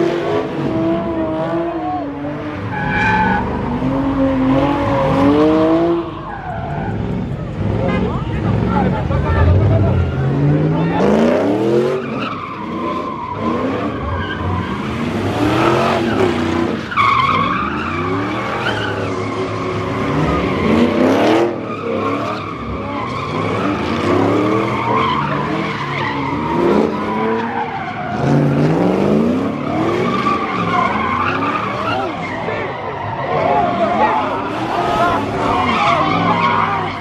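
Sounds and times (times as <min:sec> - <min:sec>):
truck engine revving: 0:00.0 - 0:37.0
tyres squealing: 0:29.4 - 0:37.0.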